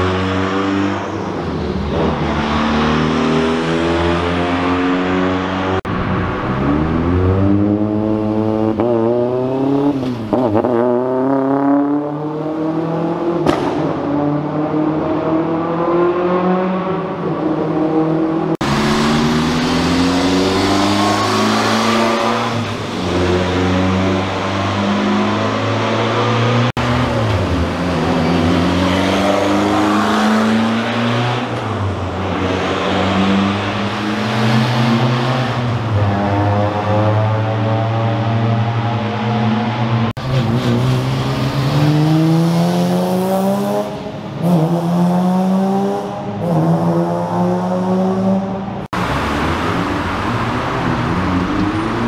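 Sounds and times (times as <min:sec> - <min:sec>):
rally car engines accelerating: 0:00.0 - 0:52.0
sharp crack: 0:13.4 - 0:14.0.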